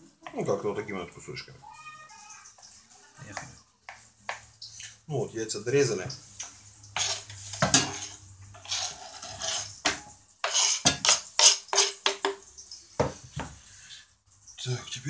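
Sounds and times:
knife scraping wooden board: 0:07.0 - 0:12.0.

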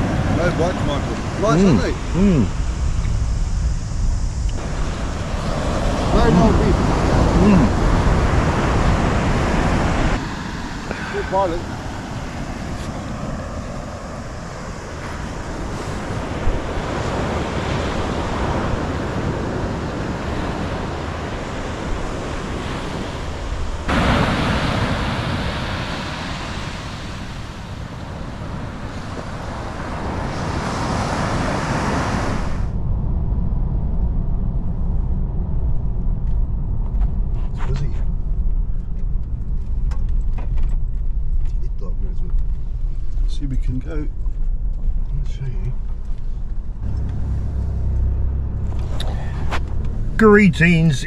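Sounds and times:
surf on beach: 0:00.0 - 0:33.4, 0:46.8 - 0:51.0
car road noise rumble: 0:00.0 - 0:51.0
wind on microphone: 0:00.0 - 0:51.0.

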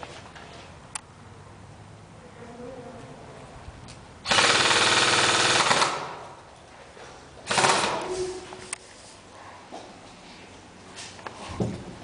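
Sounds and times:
airsoft gun automatic bursts: 0:04.2 - 0:06.2, 0:07.4 - 0:08.1.

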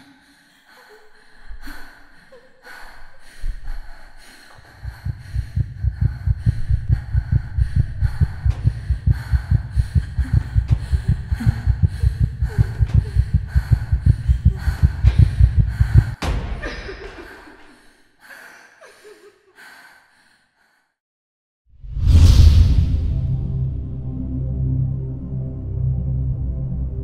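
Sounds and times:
gasping breaths: 0:00.0 - 0:16.2
fast heartbeat: 0:04.6 - 0:16.3.

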